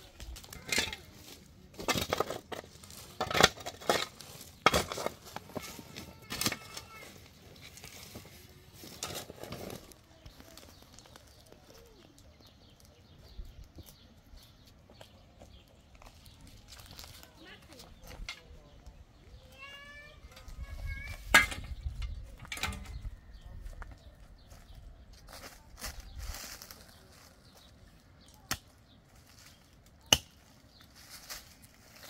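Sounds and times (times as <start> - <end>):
shovel chopping stony soil: 1.8 - 5.5, 30.0 - 30.5.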